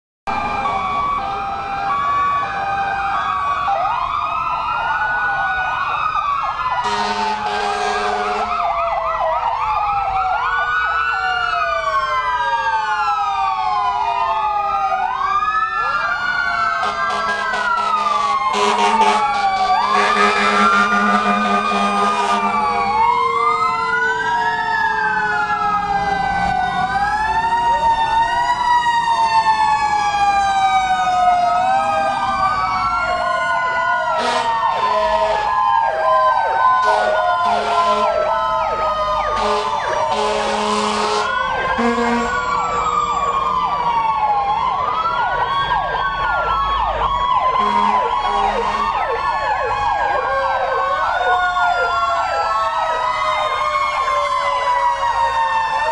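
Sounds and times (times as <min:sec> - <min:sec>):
fire truck sirens wailing: 0:00.3 - 0:55.9
yelping siren: 0:00.3 - 0:55.9
air horn blasts: 0:06.8 - 0:08.5, 0:16.8 - 0:23.0, 0:34.2 - 0:35.5, 0:36.8 - 0:38.2, 0:39.3 - 0:42.4, 0:47.6 - 0:49.0.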